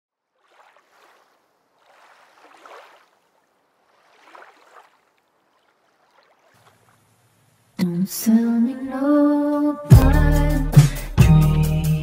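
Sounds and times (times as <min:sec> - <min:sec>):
soft swells of water: 0:00.1 - 0:07.8.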